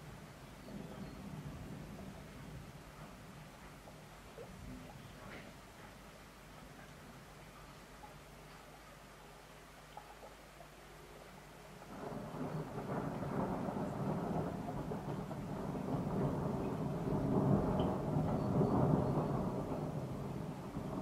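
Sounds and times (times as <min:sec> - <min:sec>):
thunder rolling: 0:00.0 - 0:03.9, 0:11.9 - 0:21.0.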